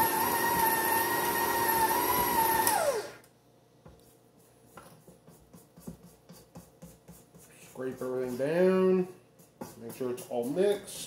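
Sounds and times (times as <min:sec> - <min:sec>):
stand mixer whining: 0:00.0 - 0:03.2.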